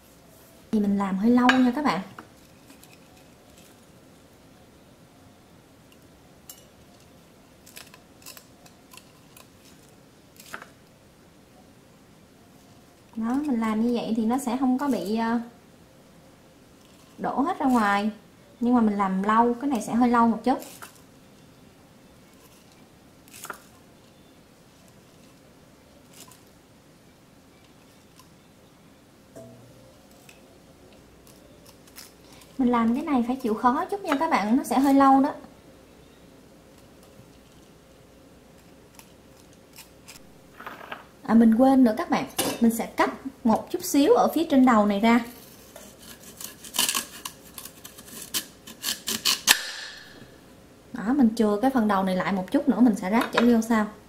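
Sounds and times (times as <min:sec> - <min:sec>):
plastic straw scraping and clicking: 0:45.4 - 0:49.6.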